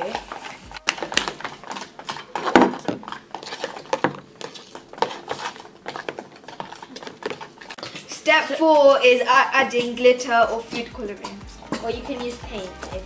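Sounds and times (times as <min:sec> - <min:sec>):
spoons scraping plastic tubs: 0:00.0 - 0:13.0.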